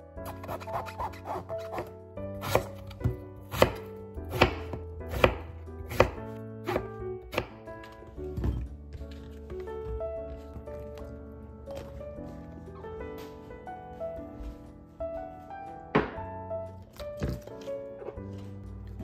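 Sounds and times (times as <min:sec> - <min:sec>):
knife cutting on wooden board: 0:00.2 - 0:07.6.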